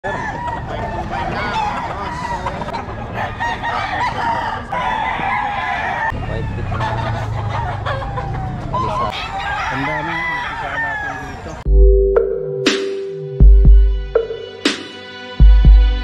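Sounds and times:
roosters crowing and clucking: 0:00.0 - 0:11.6.

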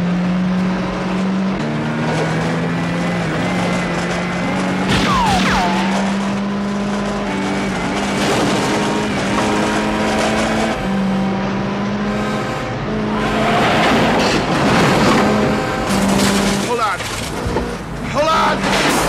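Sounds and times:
car engine under heavy throttle: 0:00.0 - 0:19.0
tyres squealing and skidding: 0:04.9 - 0:06.4, 0:13.1 - 0:17.4.

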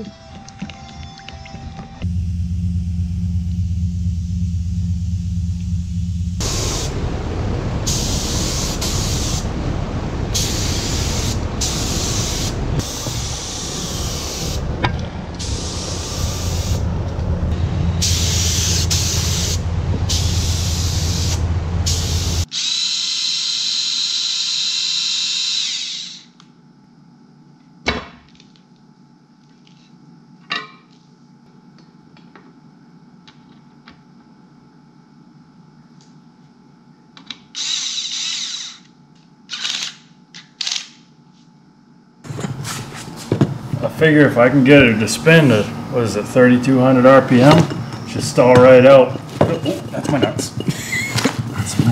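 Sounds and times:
steady low rumble: 0:02.0 - 0:22.5
compressed air spraying bursts: 0:06.4 - 0:07.0, 0:07.9 - 0:09.5, 0:10.3 - 0:14.7, 0:15.4 - 0:16.8, 0:18.0 - 0:22.5
air hiss: 0:06.4 - 0:07.1, 0:07.8 - 0:09.5, 0:10.3 - 0:14.7, 0:15.4 - 0:16.9, 0:18.0 - 0:22.5.

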